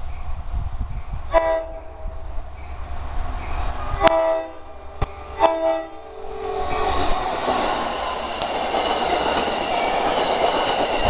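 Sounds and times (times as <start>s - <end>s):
low rumble: 0.0s - 8.4s
locomotive horn blasts: 1.3s - 2.2s, 4.0s - 7.0s.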